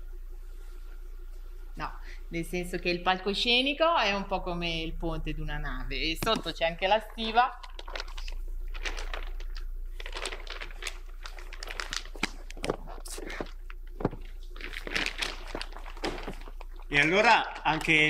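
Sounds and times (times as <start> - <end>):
low steady hum: 0.0 - 18.0
sheet rustling and crackling: 7.0 - 18.0.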